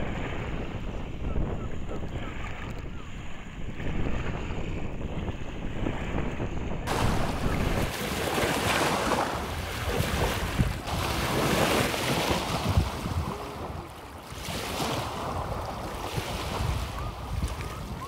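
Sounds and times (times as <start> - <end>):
wind rumbling on microphone: 0.0 - 18.0
waves washing onto pebbles: 6.9 - 17.7.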